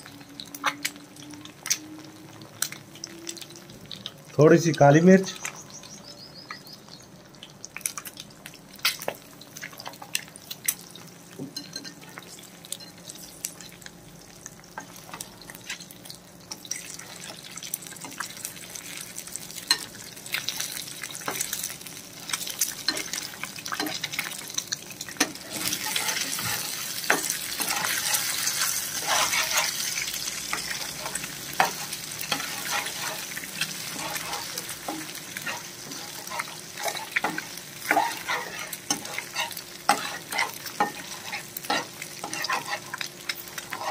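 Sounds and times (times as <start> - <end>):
eggs sizzling in frying pan: 0.0 - 43.9
metal spatula scraping a pan: 25.2 - 43.9.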